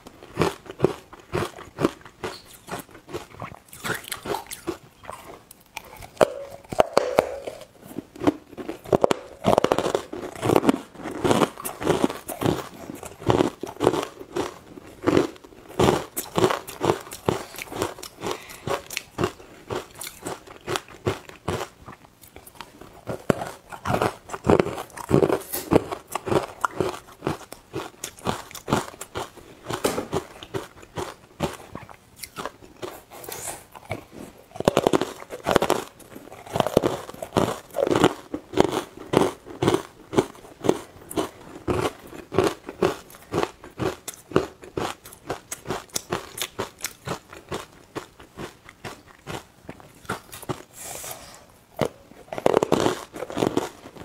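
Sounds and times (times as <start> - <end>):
crunching ice cubes: 0.2 - 21.7, 34.5 - 50.7, 51.8 - 54.0.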